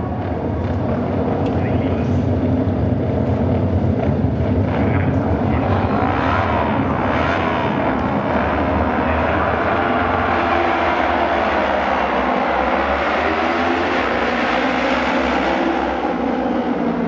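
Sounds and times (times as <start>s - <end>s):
racing motorcycle engines: 0.0s - 17.0s.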